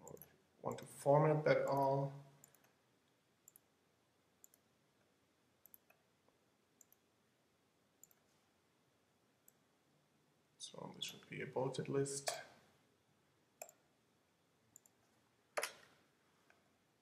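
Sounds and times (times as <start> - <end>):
faint computer mouse clicks: 8.0 - 8.2.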